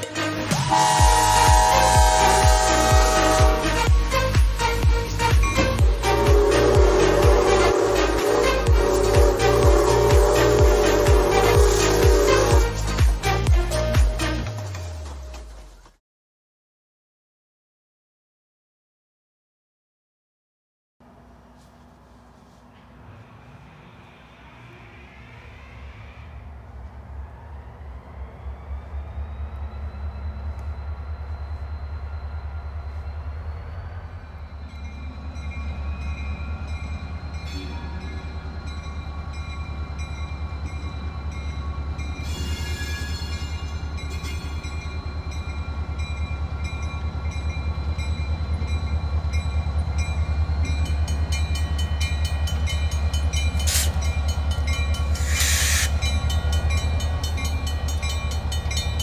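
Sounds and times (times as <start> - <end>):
diesel locomotive engine rumbling: 0.0 - 15.9, 21.0 - 59.0
rising engine whine: 21.0 - 42.2
crossing bell ringing: 34.2 - 59.0
hiss bursts: 53.6 - 54.0, 55.2 - 56.0.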